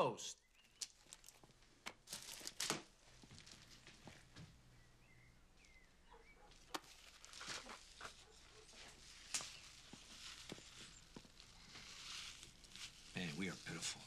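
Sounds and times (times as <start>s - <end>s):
plastic bread bag rustling: 0.9s - 4.4s, 6.6s - 14.0s.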